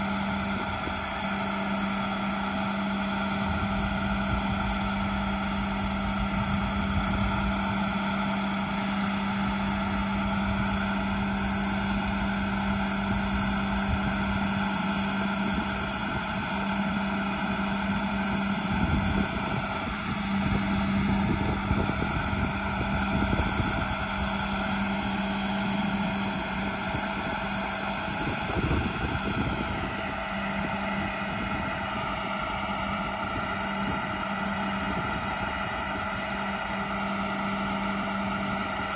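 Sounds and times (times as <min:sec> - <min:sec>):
wind rumble on microphone: 0:00.0 - 0:38.9
diesel truck engine running: 0:15.4 - 0:38.9.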